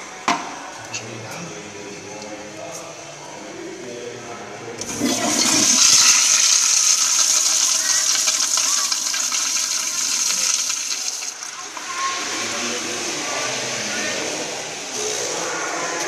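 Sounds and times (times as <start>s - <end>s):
toilet flushing: 4.8s - 16.0s.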